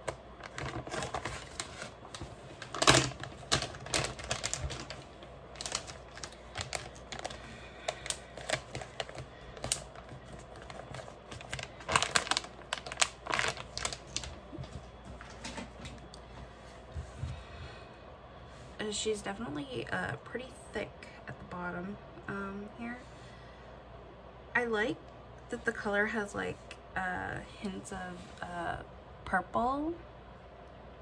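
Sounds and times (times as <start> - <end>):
plastic bag crinkling: 0.0 - 16.1.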